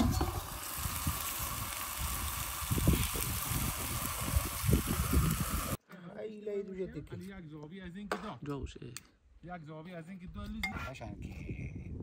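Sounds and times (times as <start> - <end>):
food sizzling in a pot: 0.0 - 5.8.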